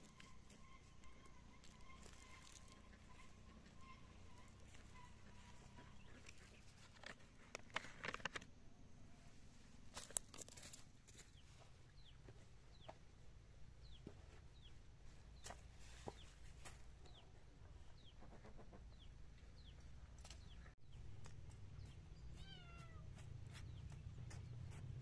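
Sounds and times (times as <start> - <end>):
crunching and rustling steps: 0.0 - 3.2, 9.9 - 11.4
chickens clucking: 0.0 - 6.8.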